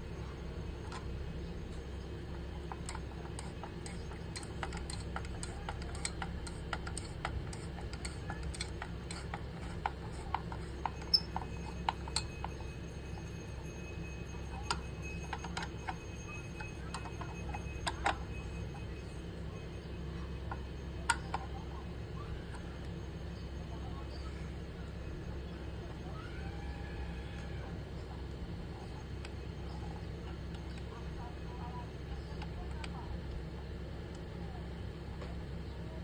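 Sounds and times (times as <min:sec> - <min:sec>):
steady low hum: 0:00.0 - 0:36.0
screwdriver clicking on screws: 0:02.7 - 0:12.3.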